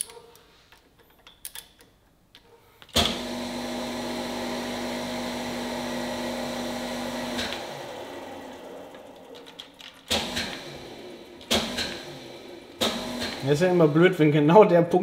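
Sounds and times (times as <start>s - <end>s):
grinding machine drive humming: 3.0s - 14.6s.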